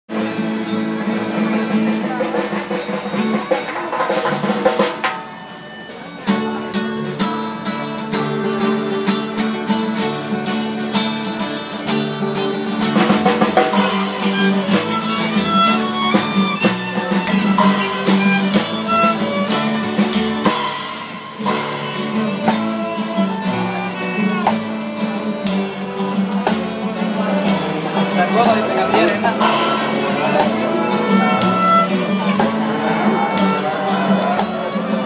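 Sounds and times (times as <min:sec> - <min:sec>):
percussion keeping the beat: 0:00.1 - 0:35.0
strummed acoustic guitar: 0:00.1 - 0:35.0
double bass: 0:06.5 - 0:34.8
violin melody: 0:13.8 - 0:26.2, 0:27.2 - 0:35.0.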